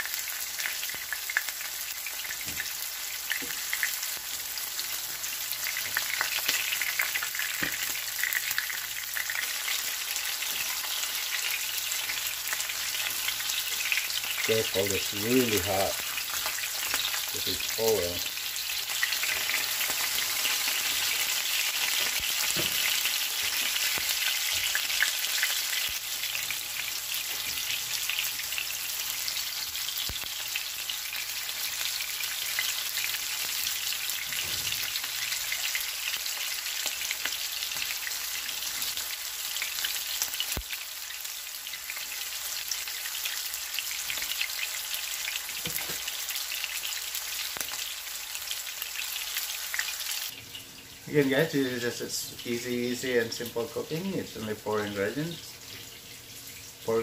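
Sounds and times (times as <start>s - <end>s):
schnitzels sizzling in oil: 0.0s - 57.0s.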